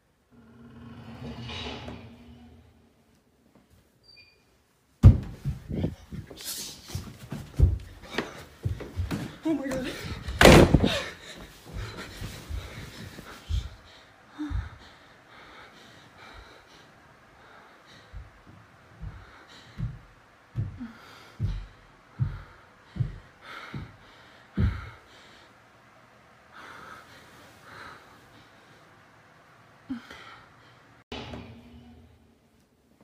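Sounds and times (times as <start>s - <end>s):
person breathing hard and gasping: 5.7s - 25.6s.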